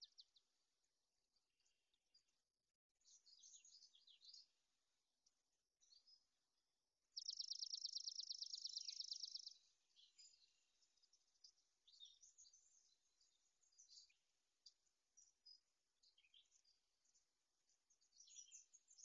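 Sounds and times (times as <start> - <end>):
faint bird chirps: 0.0 - 19.0.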